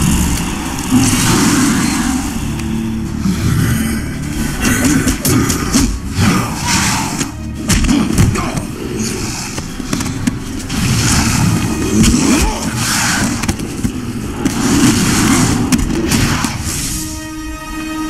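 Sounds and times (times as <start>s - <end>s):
loud low rumble: 0.0s - 6.8s.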